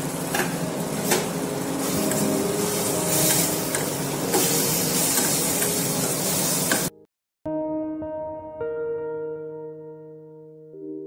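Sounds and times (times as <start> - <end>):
vegetables sizzling in hot oil: 0.0 - 6.9
soft background music: 0.3 - 6.9.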